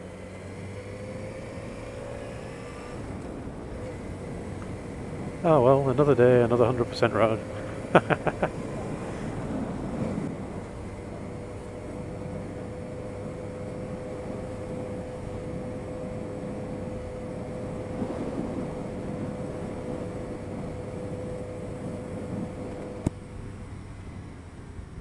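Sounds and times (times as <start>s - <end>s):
motorcycle engine and wind drone: 0.0s - 25.0s.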